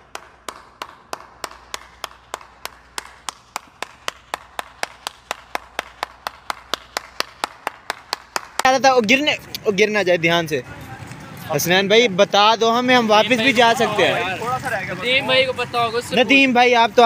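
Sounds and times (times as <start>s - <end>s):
person clapping hands: 0.0s - 9.2s.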